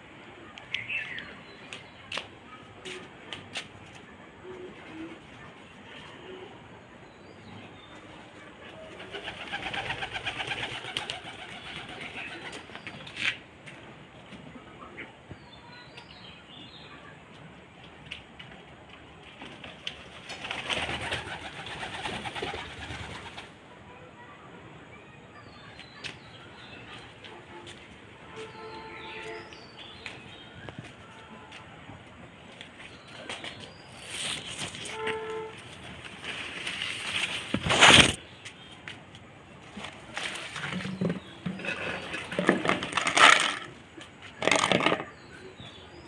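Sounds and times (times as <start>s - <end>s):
rustling: 32.9s - 38.2s.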